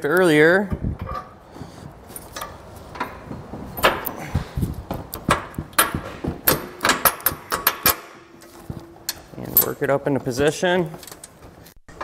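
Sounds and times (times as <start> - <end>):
metal clinks and knocks: 2.0 - 4.2, 4.9 - 9.9.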